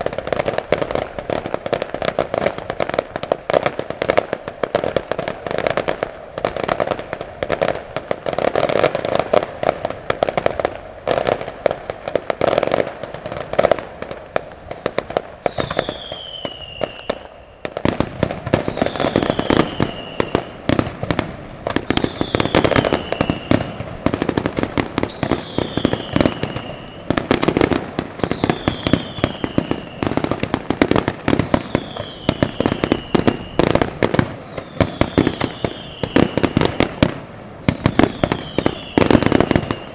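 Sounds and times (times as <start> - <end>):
fireworks crackling and popping: 0.0 - 39.9
falling firework whistle: 12.4 - 39.9.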